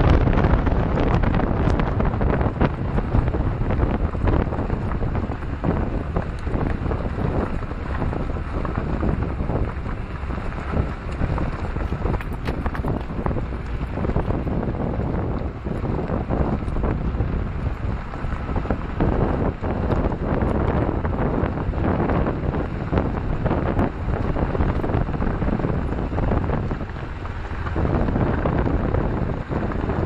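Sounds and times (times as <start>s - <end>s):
moving train running noise: 0.0s - 30.0s
wind buffeting microphone: 0.0s - 30.0s.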